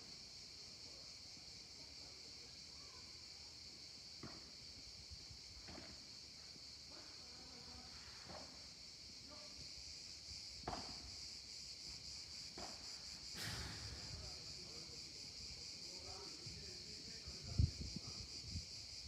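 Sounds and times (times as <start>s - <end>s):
high insect drone: 0.0s - 19.0s
balls struck by rackets: 10.6s - 11.0s.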